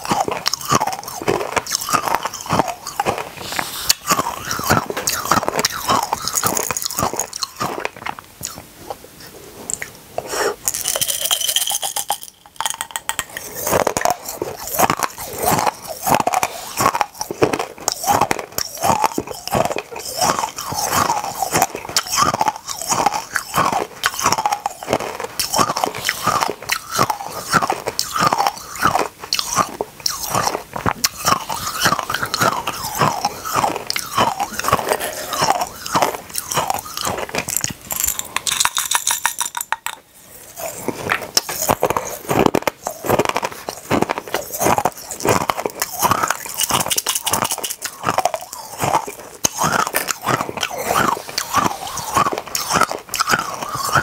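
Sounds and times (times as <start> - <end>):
crunching hard candies: 0.0 - 54.0.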